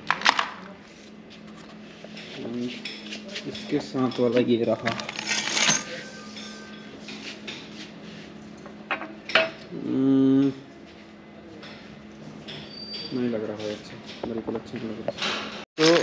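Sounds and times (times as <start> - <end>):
metal parts and bolts clinking: 4.1 - 6.8.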